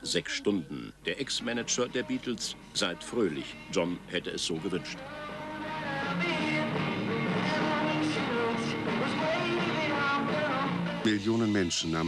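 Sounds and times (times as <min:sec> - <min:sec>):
person singing: 0:01.4 - 0:12.0
rock music with guitar: 0:05.0 - 0:11.4.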